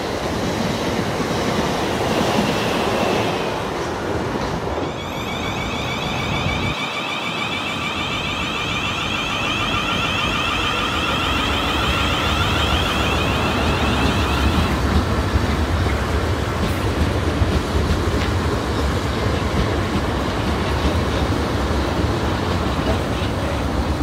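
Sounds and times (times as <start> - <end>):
train wheels rumbling on track: 0.0 - 24.0
electric train traction whine: 4.8 - 15.4.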